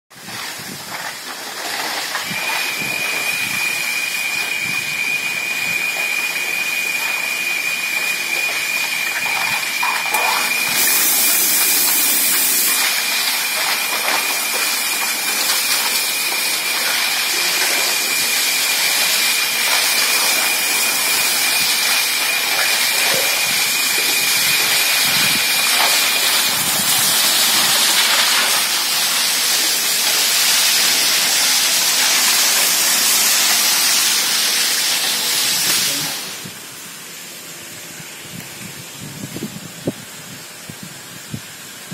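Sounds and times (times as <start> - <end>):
power trowel rushing noise: 0.1 - 36.8
thin high whine: 1.8 - 41.9.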